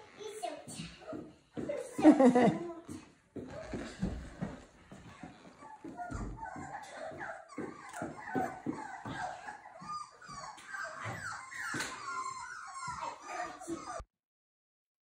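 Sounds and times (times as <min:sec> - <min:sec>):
puppies whining and yipping: 0:03.5 - 0:14.1.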